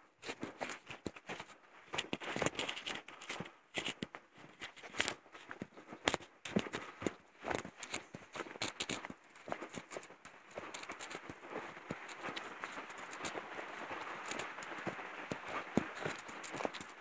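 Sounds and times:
footsteps crunching on dry leaves: 0:07.4 - 0:17.0.

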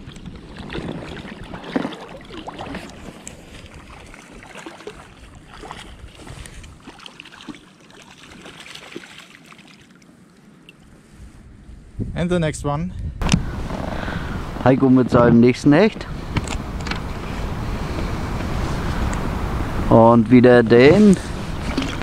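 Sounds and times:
wind on microphone: 0:00.0 - 0:04.2, 0:11.0 - 0:22.0
water splashing and lapping: 0:00.0 - 0:11.2, 0:21.0 - 0:22.0.

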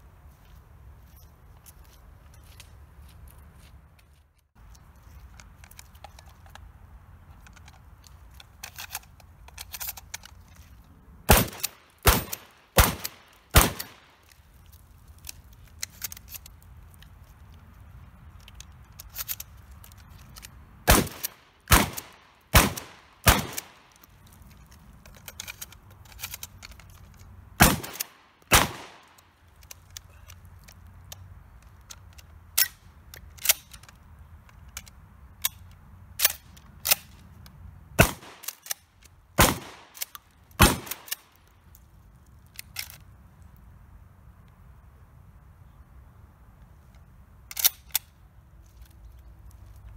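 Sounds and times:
shotgun shots: 0:11.3 - 0:14.1, 0:20.9 - 0:23.8, 0:27.6 - 0:29.1, 0:38.0 - 0:38.4, 0:39.4 - 0:40.0, 0:40.6 - 0:41.1
shotgun action clicks: 0:47.5 - 0:48.1.

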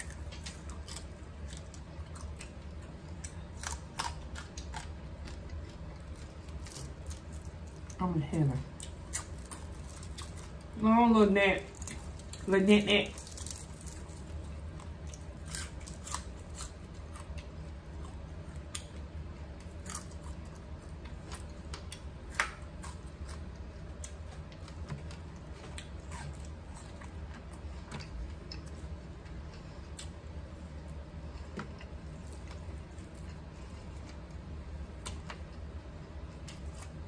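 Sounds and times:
steady low hum: 0:00.0 - 0:37.0
fried fish crust crunching: 0:11.7 - 0:19.0.

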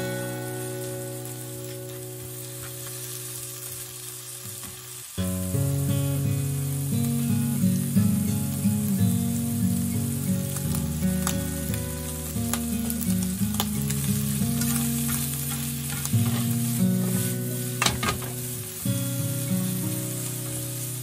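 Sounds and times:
food sizzling in a frying pan: 0:00.0 - 0:21.0
spatula tapping and scraping pan: 0:14.6 - 0:18.4.

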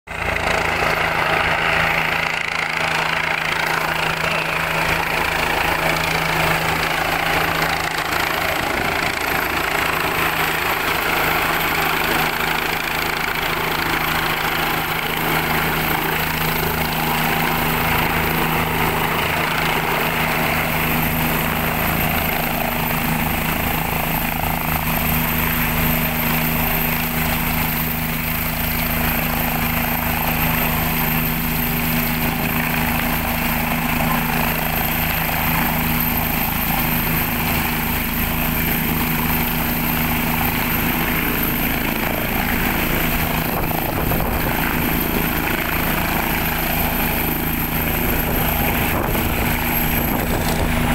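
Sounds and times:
helicopter rotor beating: 0:00.1 - 0:50.9
high whine of turbine engines: 0:00.1 - 0:50.9.

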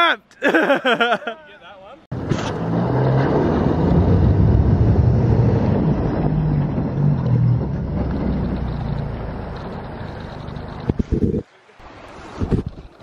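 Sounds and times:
vehicle engine revving: 0:02.1 - 0:11.3.

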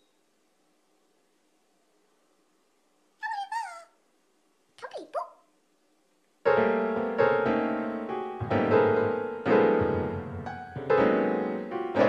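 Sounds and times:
slow sad keyboard tune: 0:06.5 - 0:12.0.

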